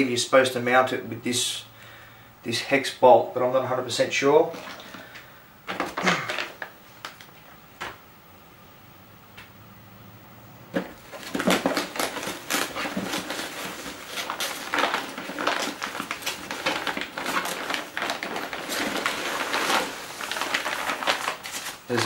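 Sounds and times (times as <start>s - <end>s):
plastic bag rustling: 4.4s - 7.4s, 10.8s - 22.0s.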